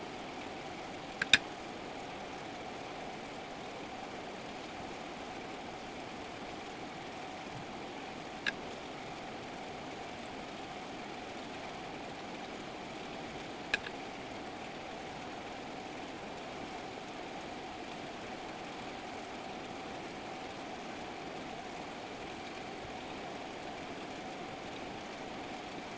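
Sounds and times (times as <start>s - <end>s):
steady mechanical hum: 0.0s - 25.9s
sharp click: 1.2s - 1.4s.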